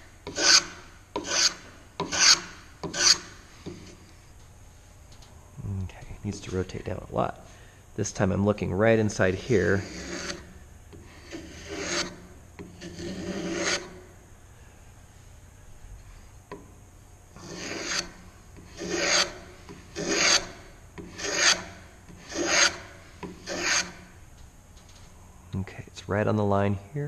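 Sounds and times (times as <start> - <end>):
block plane shaving wood: 0.3 - 4.0, 9.6 - 10.5, 11.1 - 14.0, 17.4 - 24.0.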